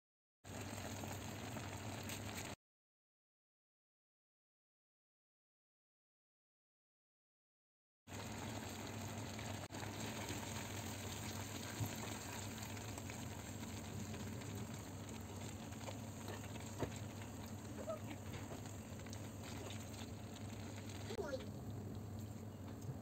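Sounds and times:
low hum and hiss: 8.2 - 23.0.

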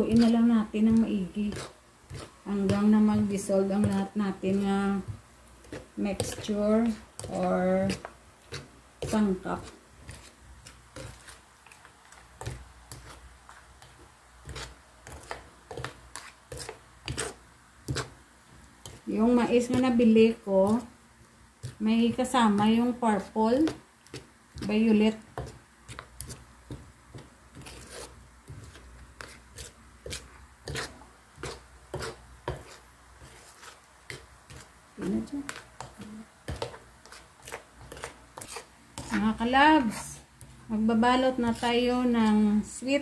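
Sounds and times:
spoon scraping bowl stirring batter: 0.0 - 43.0
metal spoon scraping a bowl: 36.5 - 40.2.

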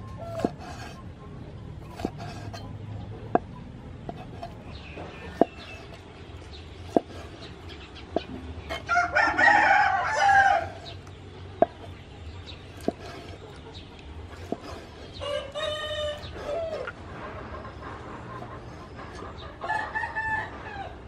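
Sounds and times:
rooster crowing: 8.7 - 10.9, 15.2 - 16.9, 19.6 - 21.0.

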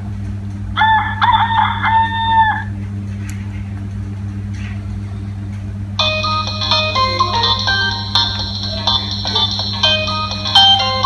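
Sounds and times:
steady low hum: 0.0 - 11.0
rooster crow from phone speaker: 0.8 - 2.7.

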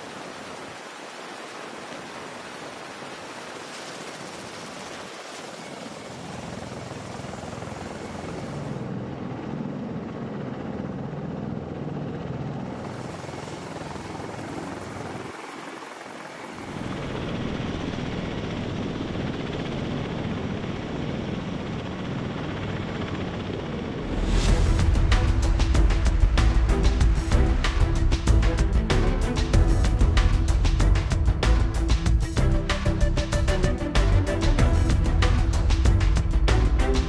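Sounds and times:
helicopter drone: 0.0 - 37.0
tiltrotor turbine and rotor drone: 0.0 - 37.0
music: 24.0 - 37.0.

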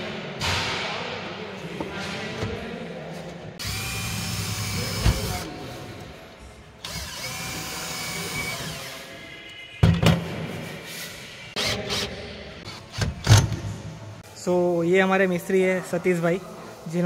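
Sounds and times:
power drill whining: 3.6 - 5.5, 6.8 - 9.1.

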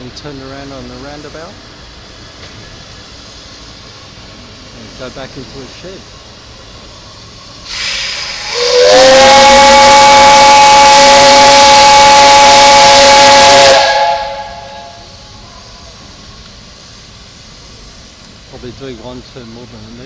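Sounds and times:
steam hissing: 0.0 - 20.0
steam whistle blast: 7.7 - 15.2.

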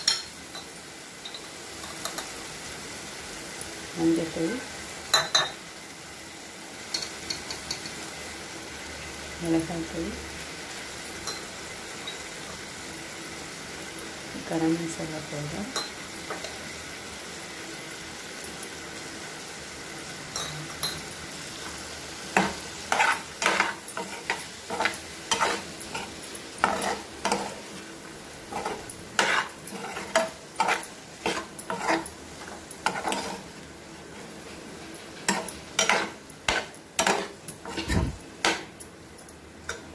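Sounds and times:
potatoes sizzling in oil: 0.0 - 39.9
steel spoon scraping a pan: 22.3 - 27.8, 28.5 - 33.6, 34.9 - 38.7.

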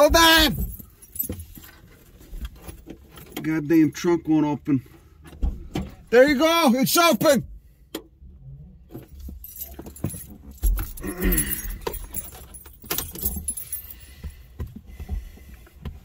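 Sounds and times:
light metallic jingling: 0.0 - 4.0, 8.9 - 14.5.

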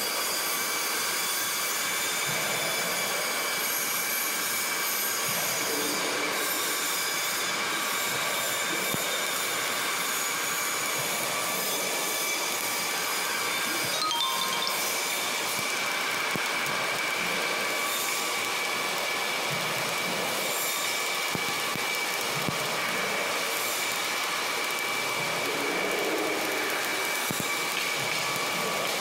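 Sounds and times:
welding arc crackling hiss: 0.2 - 14.0, 15.0 - 29.0.

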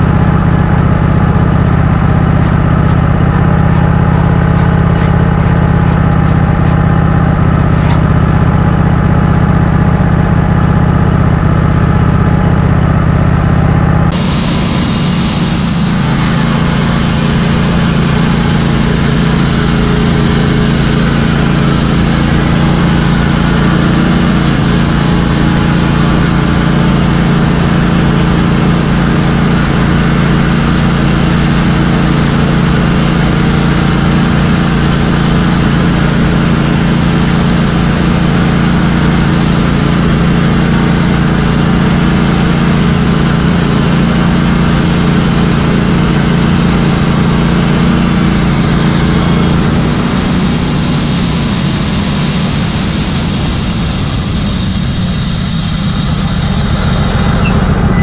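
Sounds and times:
sawmill engine running: 0.0 - 58.0
band blade sawing log: 14.1 - 58.0.

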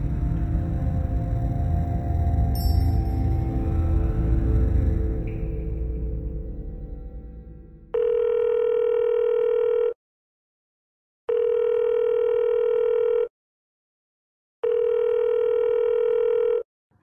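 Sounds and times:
ambient music: 0.0 - 8.0
telephone ringback tone: 8.0 - 9.9, 14.6 - 16.6.

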